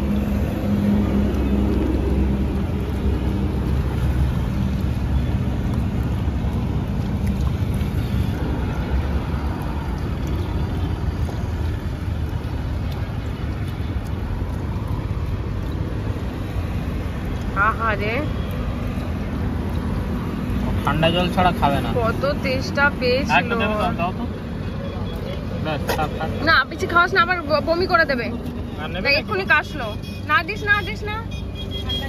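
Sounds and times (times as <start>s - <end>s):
car road and engine rumble: 0.0s - 32.0s.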